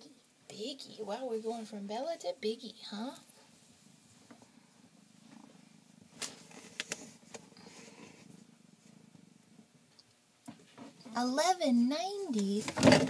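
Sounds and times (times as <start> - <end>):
kitten purring: 2.9 - 9.9.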